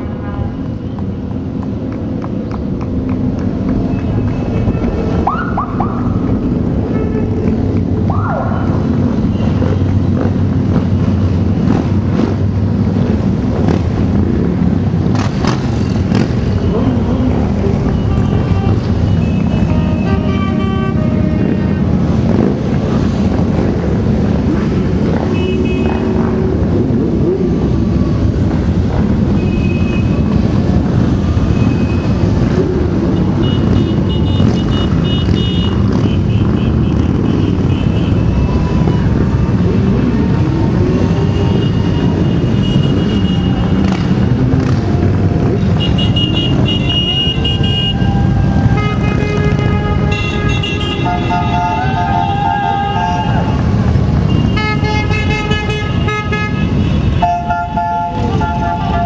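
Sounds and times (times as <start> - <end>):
motorcycles rumbling past: 8.6 - 19.7, 21.4 - 29.3, 30.2 - 50.6.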